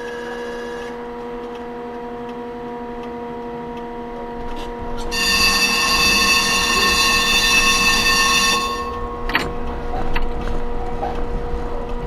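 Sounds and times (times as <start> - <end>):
tram hum: 3.8 - 12.0
tram warning horn: 5.1 - 10.0.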